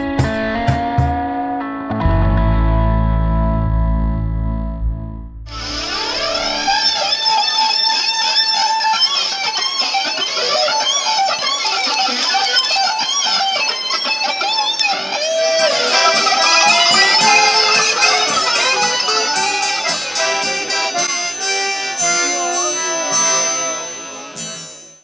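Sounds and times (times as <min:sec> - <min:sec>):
electric guitar lead melody: 0:00.0 - 0:25.0.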